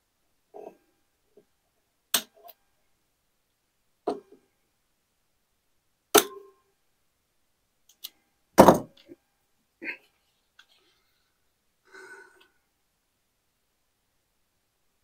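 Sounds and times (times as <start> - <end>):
heavy thunk: 8.6 - 9.0.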